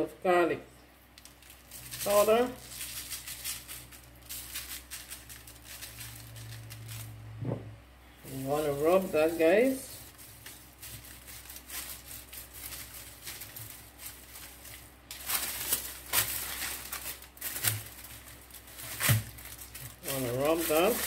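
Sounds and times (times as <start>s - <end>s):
paper and foil crinkling: 1.1s - 7.3s, 8.2s - 21.0s
hand rubbing meat: 8.2s - 21.0s.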